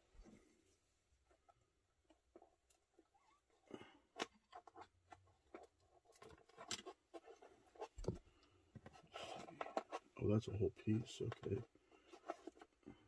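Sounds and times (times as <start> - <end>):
plastic packaging clicks and rustles: 4.0 - 13.0.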